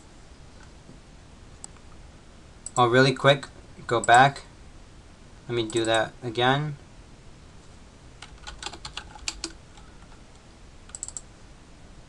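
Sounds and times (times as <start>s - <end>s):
keyboard typing: 8.2s - 10.2s, 10.9s - 11.2s.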